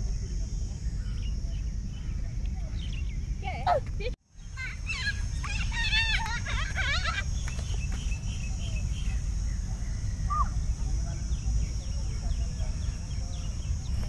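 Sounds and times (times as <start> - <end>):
high insect drone: 0.0 - 14.0
faint bird chirps: 4.3 - 14.0.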